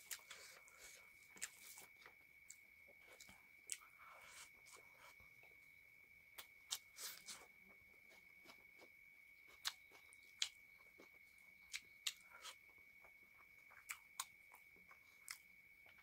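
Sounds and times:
wet chewing smacks and clicks: 9.5s - 12.6s.

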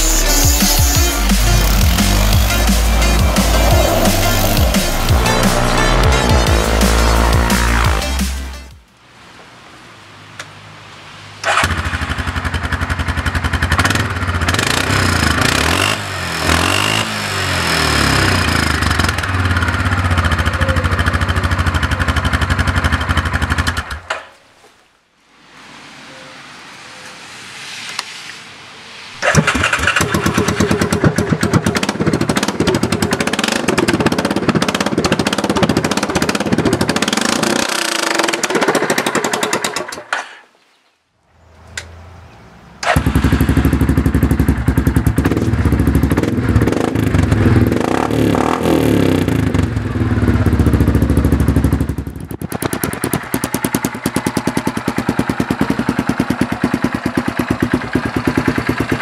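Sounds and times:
atv engine without exhaust: 0.0s - 8.7s, 11.4s - 24.3s, 29.2s - 40.2s, 41.5s - 59.0s.

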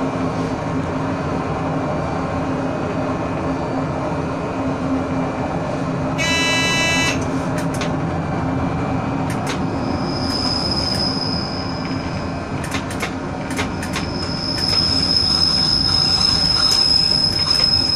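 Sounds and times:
train rumbling: 0.0s - 17.9s
high wheel squeal: 6.2s - 7.2s, 9.7s - 12.2s, 13.8s - 17.9s
shrill signal tone: 6.2s - 7.2s
wheel clicks on track: 12.6s - 14.9s.

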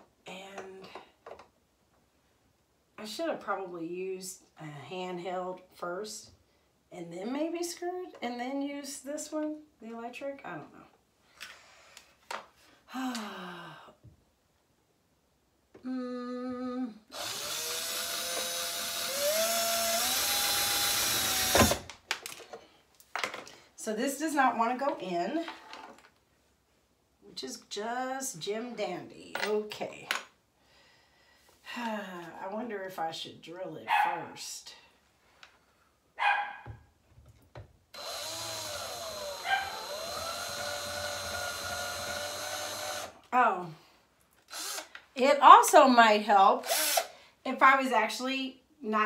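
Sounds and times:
cordless drill whining: 17.1s - 21.9s, 38.0s - 43.2s, 44.5s - 45.0s, 46.6s - 47.1s
dog barking: 33.9s - 34.3s, 36.2s - 36.8s, 39.4s - 39.8s.

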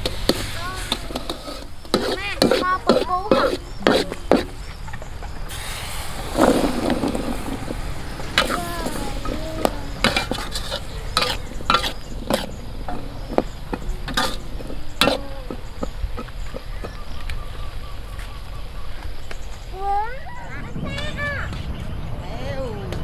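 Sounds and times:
metal spatula scraping a wok: 0.0s - 4.6s, 5.5s - 16.9s
seeds being poured: 5.5s - 7.9s.

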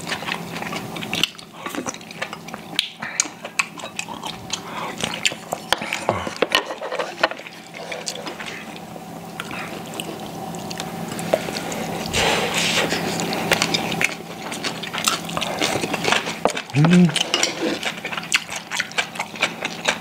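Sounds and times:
wet chewing and slurping: 0.0s - 20.0s.

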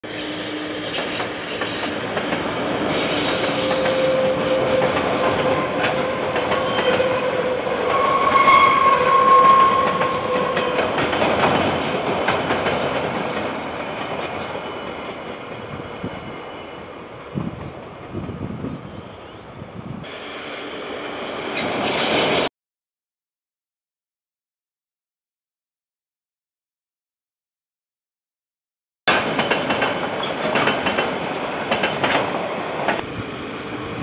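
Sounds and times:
train wheels clacking over rails: 0.8s - 8.1s, 9.4s - 15.7s, 29.1s - 33.1s.

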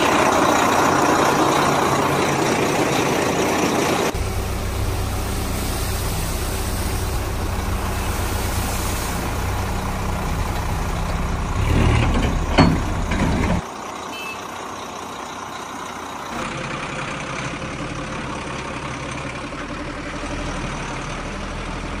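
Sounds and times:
lighter engine noise: 0.0s - 11.8s
heavy truck engine running: 0.0s - 22.0s.

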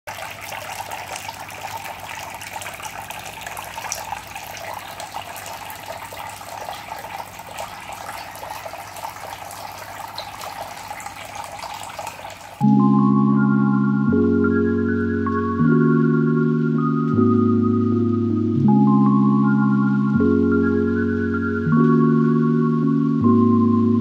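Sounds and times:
water streams splashing into tub: 0.0s - 12.6s.

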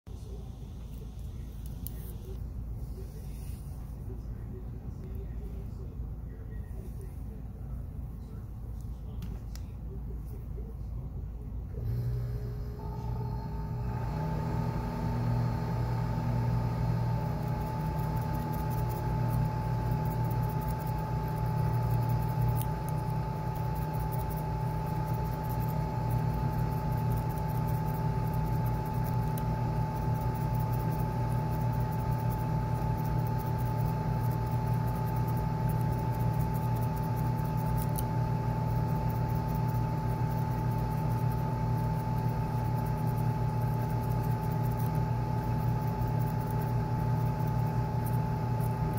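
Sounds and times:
steady mechanical hum: 0.1s - 48.9s.

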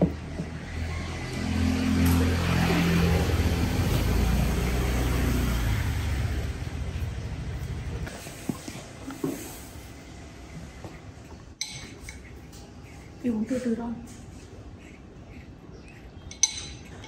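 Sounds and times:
vehicle engine passing by: 0.1s - 8.1s.

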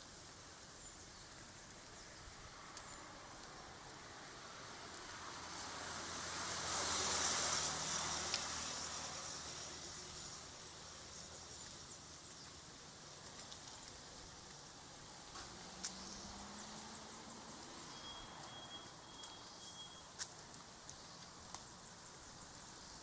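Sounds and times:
vehicle passing by: 2.5s - 11.7s, 15.0s - 18.5s.

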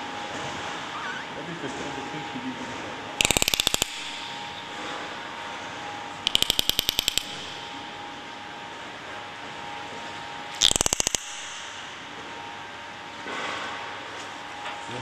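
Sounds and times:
dolphin clicks: 3.2s - 4.4s, 6.3s - 7.6s, 10.6s - 11.9s.

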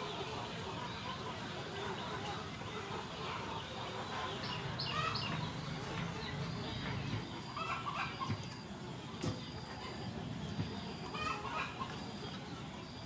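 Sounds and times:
chickens clucking: 0.0s - 13.0s
outdoor background noise: 0.0s - 13.0s.

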